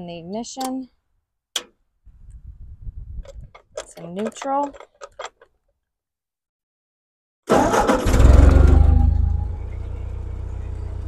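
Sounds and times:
tractor engine starting and idling: 7.5s - 11.0s.

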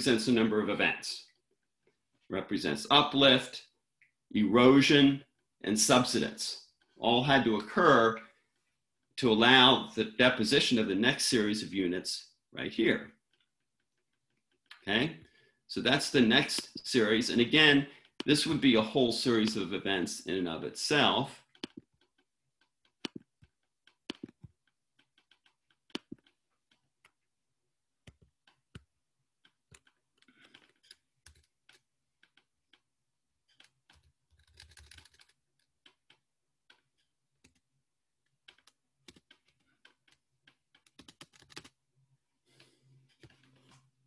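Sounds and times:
typing on computer keyboard: 21.5s - 27.2s, 29.5s - 32.9s, 33.5s - 37.6s, 38.4s - 41.8s.

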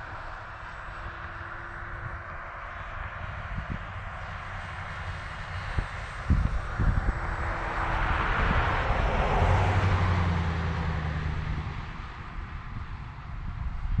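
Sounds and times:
wind thumps on microphone: 5.6s - 7.6s, 12.8s - 14.0s.

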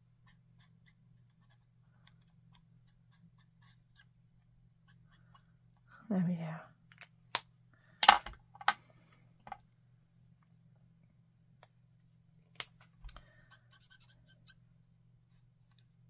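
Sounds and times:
marker nib scratching paper: 0.1s - 4.2s, 4.8s - 5.5s, 13.4s - 14.6s.

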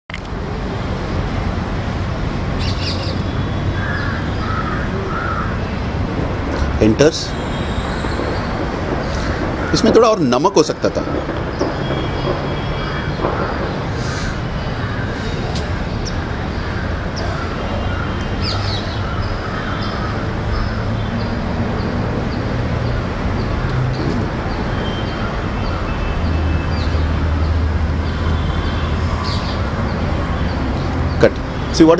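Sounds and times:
crow cawing: 3.8s - 5.6s, 9.0s - 10.0s, 12.6s - 20.8s.

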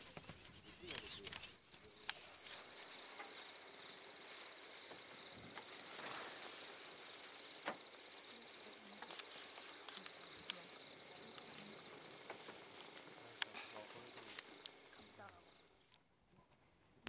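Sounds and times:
cricket trilling: 0.8s - 16.0s
faint clicks: 7.6s - 16.0s.

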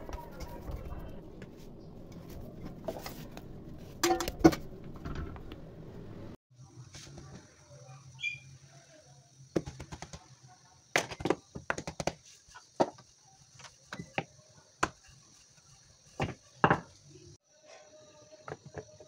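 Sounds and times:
rolling pin tapping on stone: 11.0s - 12.2s, 13.9s - 15.1s.

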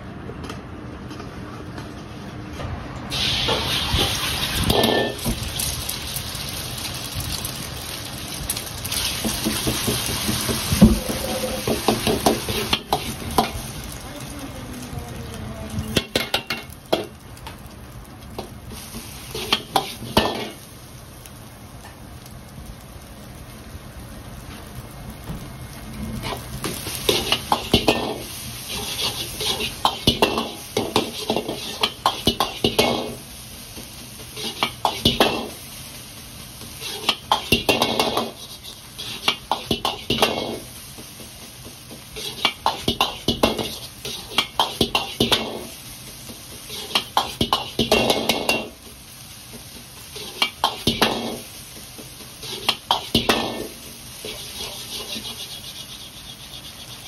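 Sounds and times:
metal ladle scraping wok: 3.1s - 5.7s, 27.0s - 33.2s, 36.8s - 40.7s, 42.1s - 45.7s, 46.6s - 48.7s, 50.1s - 51.5s, 52.4s - 57.0s
steady sizzling hiss: 3.1s - 57.0s.

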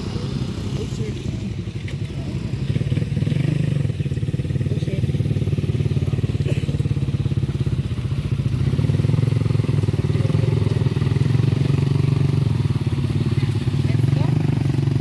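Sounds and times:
small motorcycle engine running: 0.0s - 15.0s.

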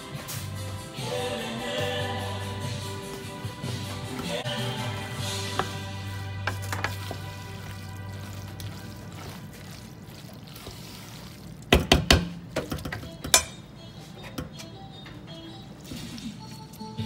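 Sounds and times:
soft background music: 0.0s - 11.4s, 12.7s - 17.0s
spoon knocking metal pot: 11.8s - 13.6s.

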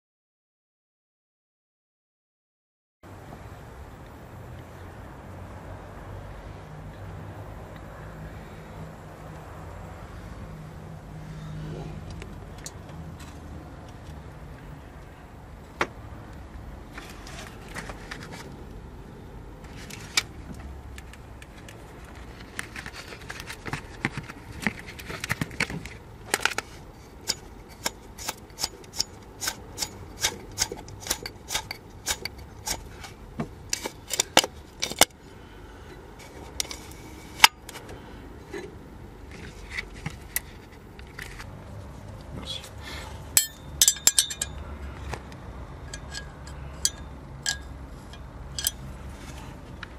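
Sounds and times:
clutch bearing rattling: 27.2s - 35.2s, 43.4s - 44.7s, 45.8s - 48.9s.

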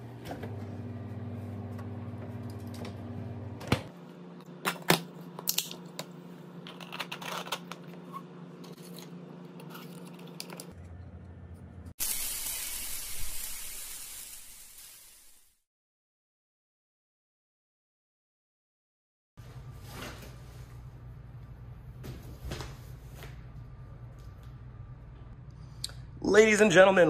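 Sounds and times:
refrigerator hum: 0.0s - 11.9s, 19.4s - 27.0s.

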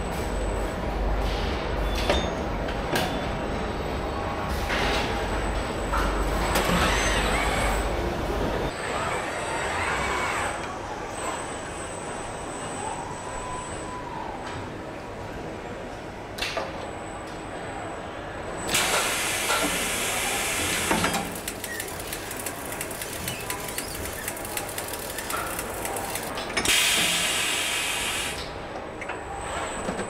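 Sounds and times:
factory background noise: 0.0s - 30.0s.

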